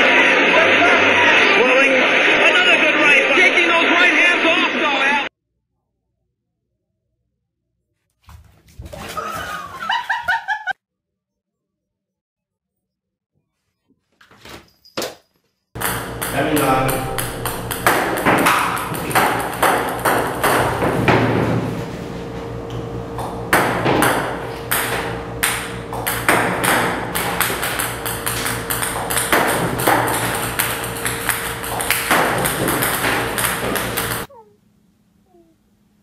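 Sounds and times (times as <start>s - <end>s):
table tennis balls bouncing: 15.8s - 21.7s, 22.7s - 34.3s.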